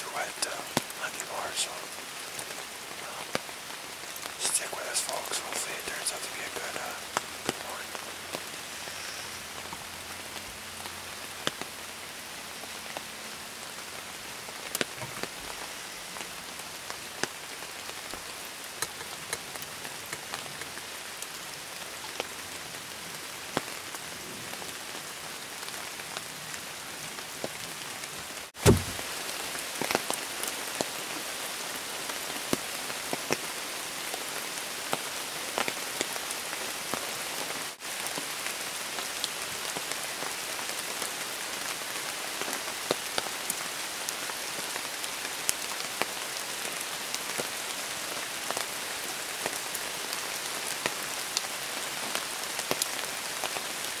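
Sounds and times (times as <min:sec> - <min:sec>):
steady rain falling: 0:00.0 - 0:54.0
loud low thump: 0:28.6 - 0:29.0.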